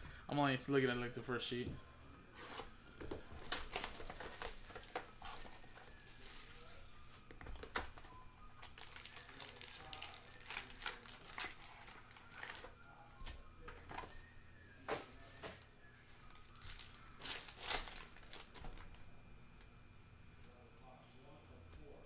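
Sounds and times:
foil wrappers crinkling: 3.3s - 7.9s, 8.6s - 12.8s, 15.1s - 19.0s.

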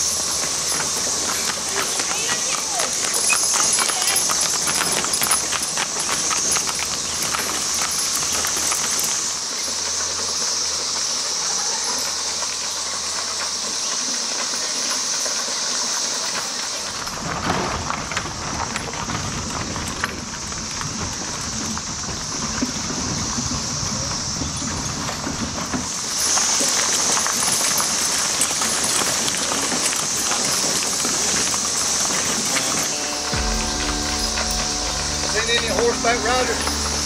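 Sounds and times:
cicadas chorus: 0.0s - 37.0s
horse hooves clip-clopping: 0.0s - 37.0s
broad low noise: 32.4s - 37.0s.

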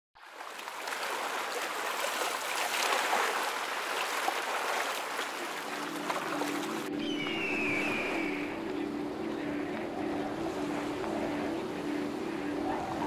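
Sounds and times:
water rushing and splashing: 0.2s - 13.0s.

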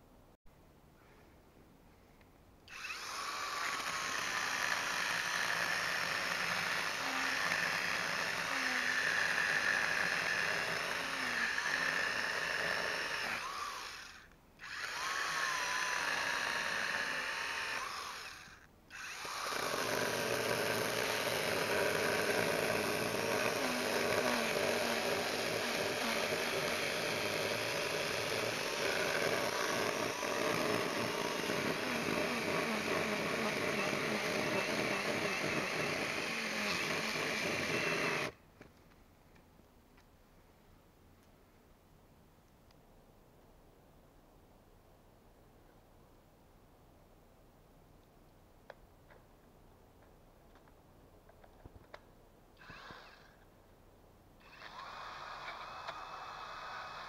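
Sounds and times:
electric chainsaw cutting log: 2.7s - 38.4s, 52.6s - 53.4s, 54.4s - 57.0s.

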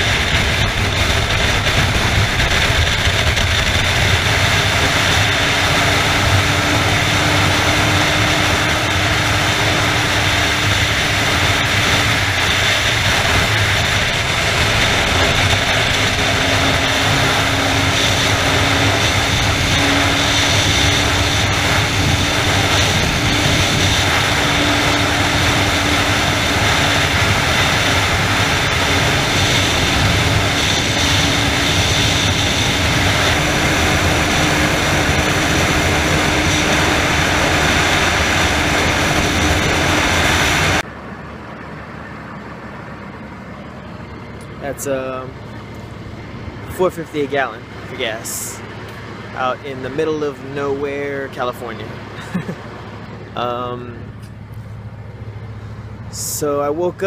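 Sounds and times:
heavy wind rush: 0.0s - 57.0s
motorcycle engine drone: 0.0s - 57.0s.

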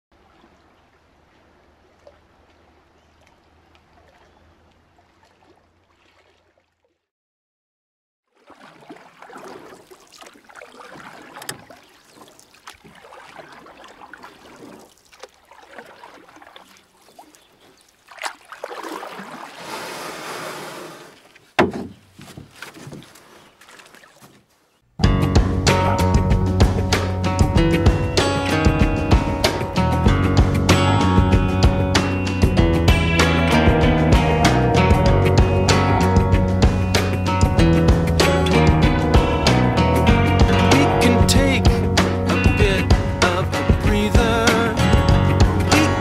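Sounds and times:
rush of water: 0.1s - 6.9s, 8.3s - 21.4s
water lapping against a canoe: 0.1s - 7.1s, 8.2s - 25.6s.

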